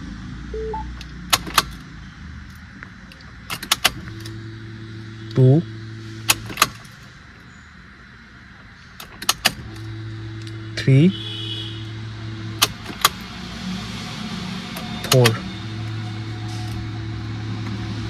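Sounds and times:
ignition key clicks: 3.5 - 4.0.

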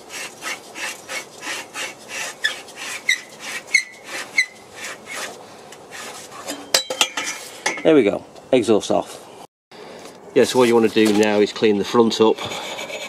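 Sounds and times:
metal-on-metal scraping: 0.0 - 7.9, 12.0 - 13.0
metal squeaks: 0.2 - 7.4.

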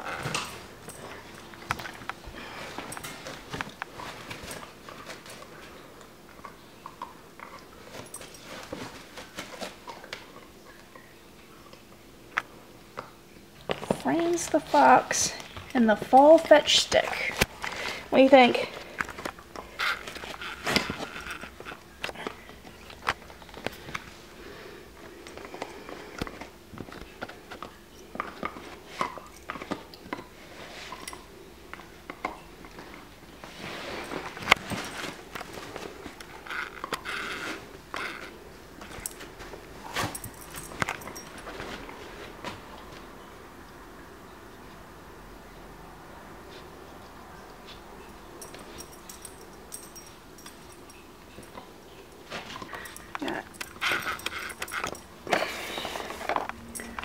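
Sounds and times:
dog chewing on a toy: 18.9 - 24.2, 48.5 - 57.0
dog gnawing chew stick: 18.9 - 24.2, 25.0 - 41.6, 51.5 - 55.2.

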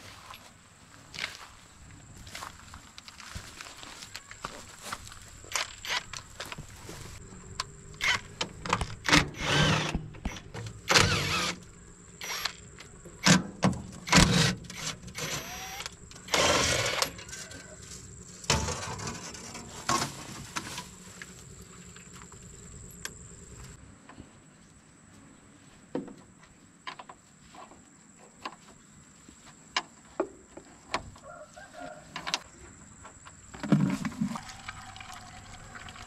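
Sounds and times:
faint high whine: 4.1 - 13.4, 14.0 - 23.9.

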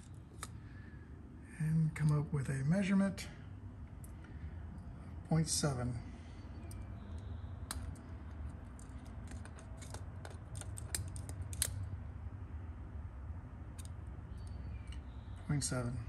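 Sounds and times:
faint low hum: 0.0 - 16.0
metallic clicks and scrapes: 6.6 - 11.9, 13.7 - 15.1.

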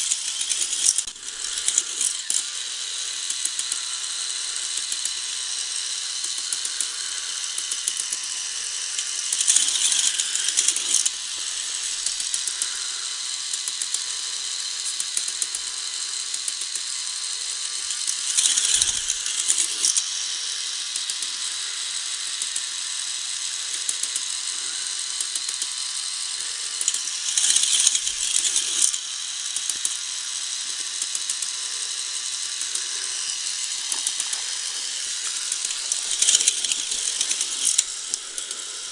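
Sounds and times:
chain lift clicking: 0.0 - 20.1, 23.7 - 38.9
car rattling along plastic track: 0.0 - 38.9.

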